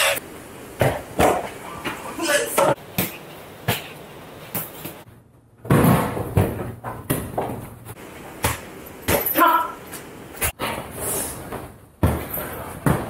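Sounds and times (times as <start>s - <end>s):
basketball bouncing thuds: 0.8s - 1.5s, 5.6s - 7.8s, 12.0s - 13.0s.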